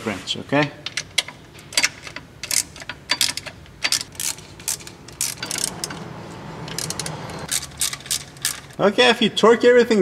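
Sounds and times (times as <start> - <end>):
socket ratchet clicking: 0.9 - 8.8.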